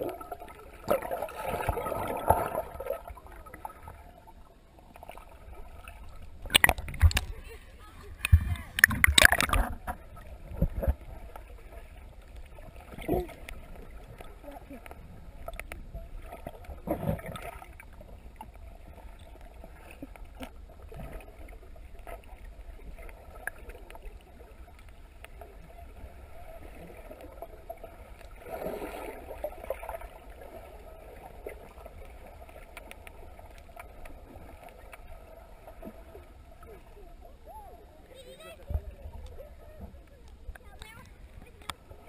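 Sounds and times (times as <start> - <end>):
muffled underwater water movement: 0.0 - 42.0
faint clicks: 6.1 - 7.4, 8.2 - 11.4, 13.3 - 15.8, 32.5 - 35.1, 38.0 - 42.0.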